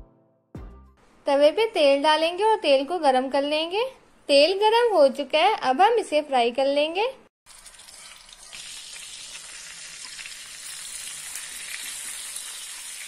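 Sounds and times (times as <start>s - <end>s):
patties sizzling in hot oil: 7.5s - 13.0s.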